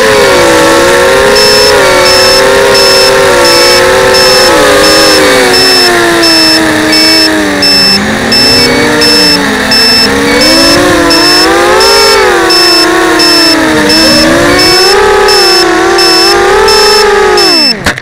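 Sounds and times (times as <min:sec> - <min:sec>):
high-pitched beeper: 0:00.0 - 0:17.8
quadcopter motors whining: 0:00.0 - 0:18.0.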